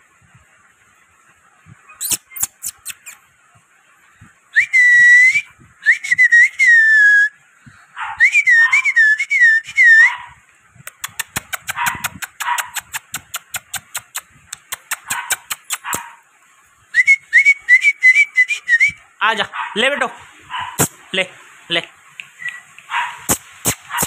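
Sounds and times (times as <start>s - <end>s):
quick tongue clicks: 2.0s - 3.2s, 10.8s - 16.1s, 20.8s - 21.0s, 22.1s - 24.0s
person whistling: 4.6s - 7.4s, 17.0s - 19.0s.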